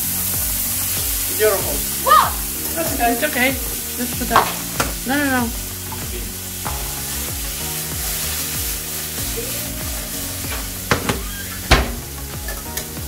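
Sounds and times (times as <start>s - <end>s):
vegetables sizzling in a frying pan: 0.0s - 13.0s
sharp knocks: 10.9s - 12.1s.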